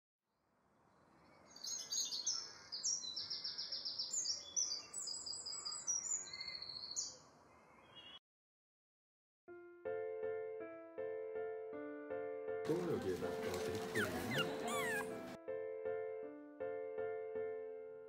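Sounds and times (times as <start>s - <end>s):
songbirds chirping and trilling: 0.8s - 8.2s.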